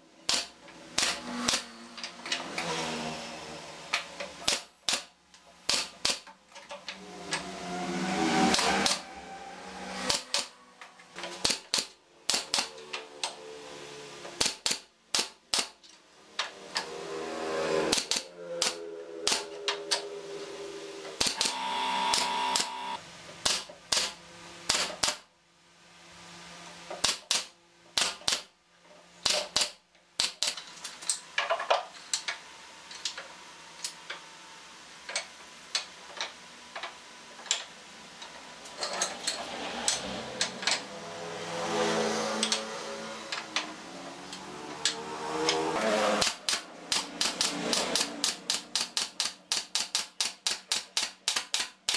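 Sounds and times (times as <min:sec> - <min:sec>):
nail gun firing: 0:00.2 - 0:01.7, 0:04.4 - 0:06.3, 0:10.0 - 0:10.5, 0:11.2 - 0:12.8, 0:14.4 - 0:15.8, 0:17.9 - 0:19.6, 0:21.2 - 0:22.8, 0:23.4 - 0:25.3, 0:27.0 - 0:28.5, 0:29.2 - 0:30.6, 0:46.2 - 0:51.9
power drill motor whirring: 0:21.2 - 0:23.0.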